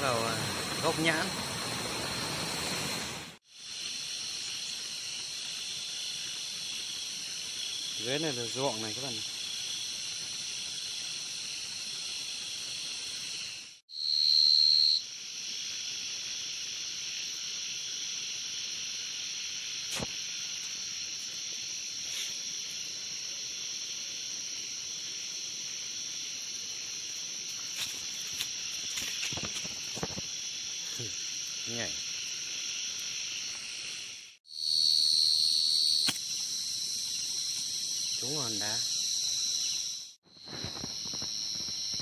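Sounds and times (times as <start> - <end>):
crickets chirping: 0.0 - 42.0
single loud cricket call: 35.8 - 36.4.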